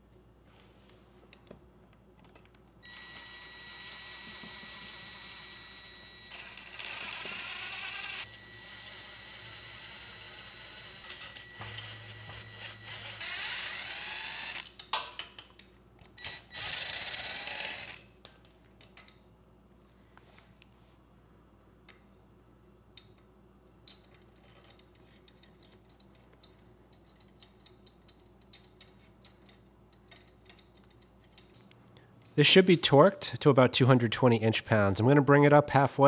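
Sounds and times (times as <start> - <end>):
impact driver whining: 2.8 - 14.8.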